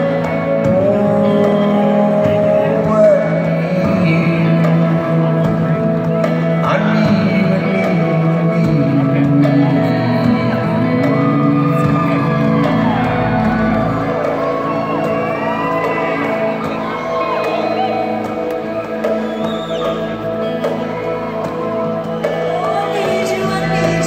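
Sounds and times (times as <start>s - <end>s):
live concert music: 0.0s - 24.0s
crowd shouting and whooping: 10.7s - 24.0s.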